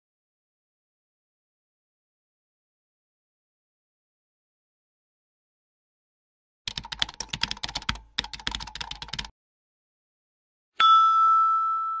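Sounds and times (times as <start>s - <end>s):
rapid keyboard key clicks: 6.7s - 9.3s
ringing chime-like tone: 10.8s - 12.0s.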